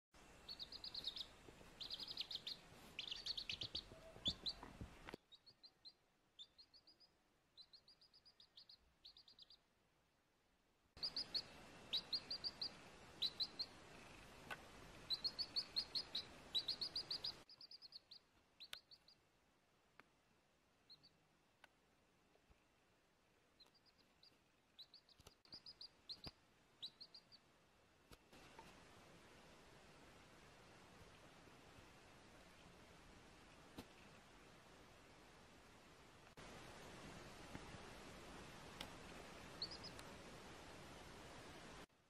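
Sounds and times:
faint background hiss: 0:00.2 - 0:42.0
baby chick peeping: 0:00.4 - 0:09.7, 0:11.0 - 0:19.3, 0:20.8 - 0:21.2, 0:23.6 - 0:27.5, 0:39.2 - 0:40.1.

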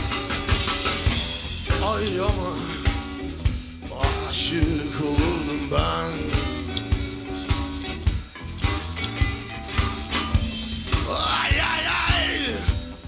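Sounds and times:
electric guitars: 0:00.0 - 0:13.0
steady drum beat: 0:00.0 - 0:13.0.

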